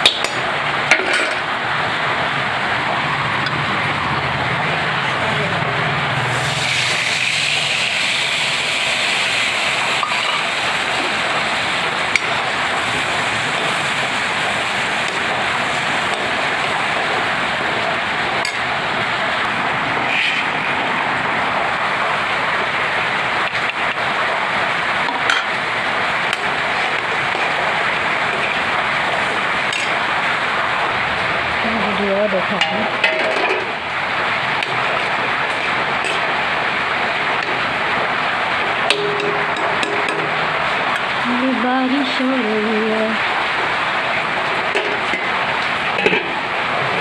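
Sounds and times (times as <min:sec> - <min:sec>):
vegetables sizzling in hot oil: 0:00.0 - 0:47.0
steel ladle clinking on pan: 0:38.9 - 0:40.4.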